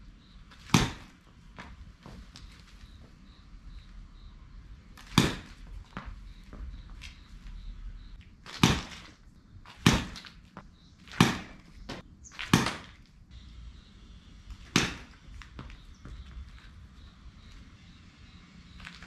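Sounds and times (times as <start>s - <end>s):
balls landing with soft knocks: 0.4s - 3.9s, 4.8s - 13.2s, 14.5s - 17.7s
baseball bat cracking ball: 0.6s - 1.8s, 4.9s - 6.1s, 8.5s - 13.1s, 14.5s - 15.8s.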